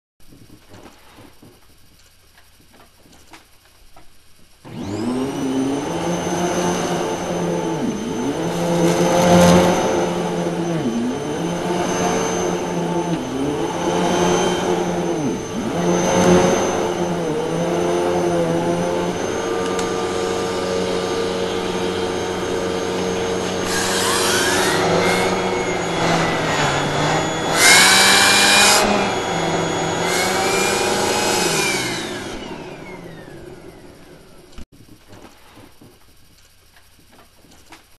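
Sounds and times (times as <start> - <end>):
vacuum cleaner running over carpet: 4.6 - 34.6.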